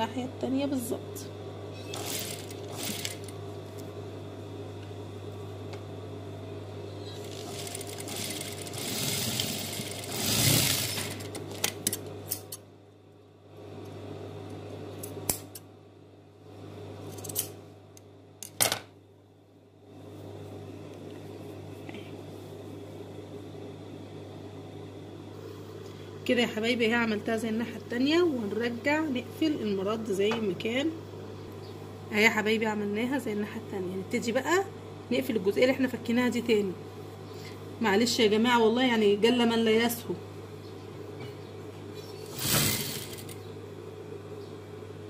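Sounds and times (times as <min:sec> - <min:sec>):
sewing machine motor hum: 0:01.8 - 0:03.5, 0:07.1 - 0:11.8, 0:42.2 - 0:43.4.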